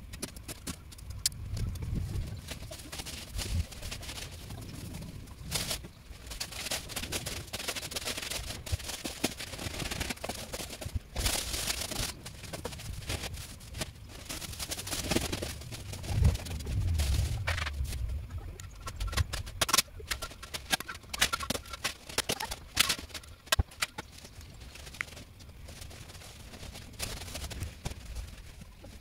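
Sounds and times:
rake scraping dry leaves: 5.4 - 28.8
low rumble: 15.2 - 20.5.

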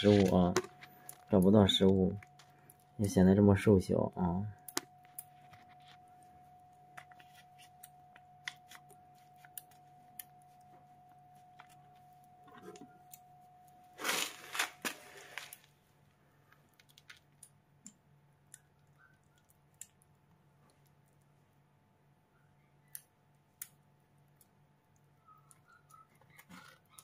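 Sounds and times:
rustling crackle: 0.0 - 3.1, 4.7 - 17.5.

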